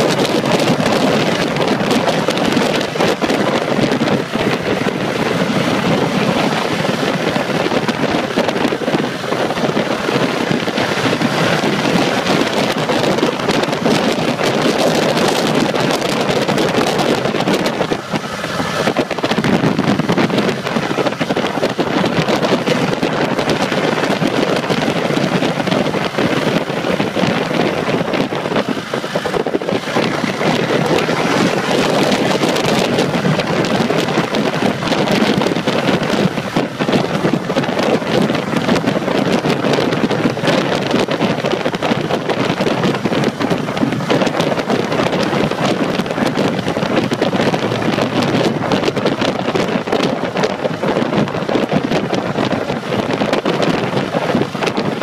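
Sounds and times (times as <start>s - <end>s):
motorcycle engine: 0.0s - 55.0s
wind buffeting microphone: 0.0s - 55.0s.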